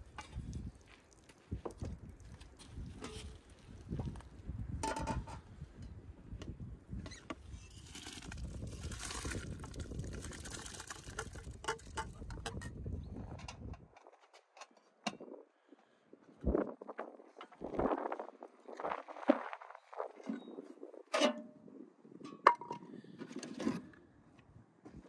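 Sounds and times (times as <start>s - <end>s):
rice pattering into water: 7.8s - 12.0s.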